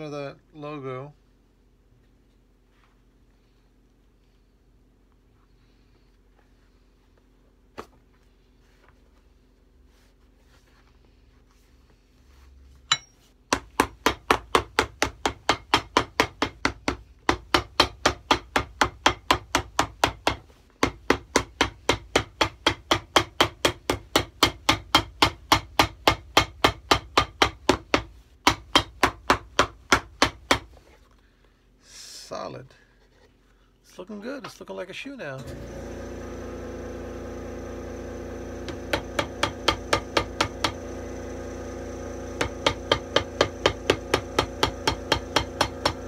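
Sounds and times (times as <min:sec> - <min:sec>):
hammer pounding leather sole: 0:12.9 - 0:30.8, 0:37.7 - 0:46.0.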